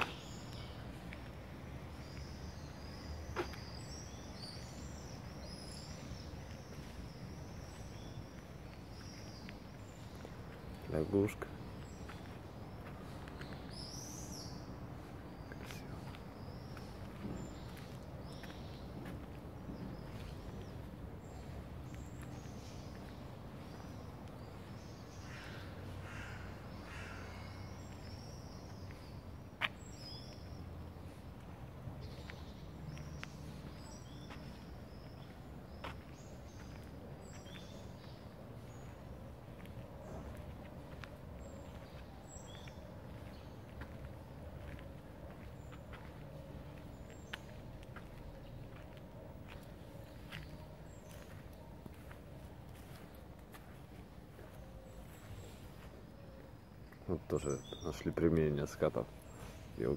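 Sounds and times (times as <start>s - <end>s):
songbirds chirping: 0.0s - 59.9s
crow cawing: 25.2s - 27.7s.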